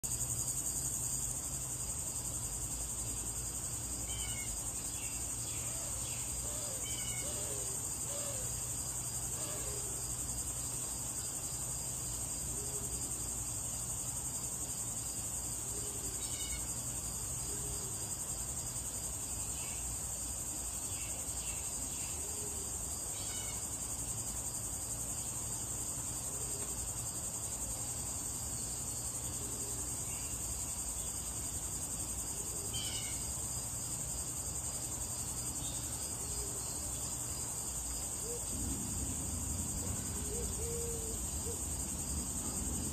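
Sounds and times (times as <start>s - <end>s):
insects droning: 0.0s - 42.9s
low steady hum: 38.4s - 42.9s.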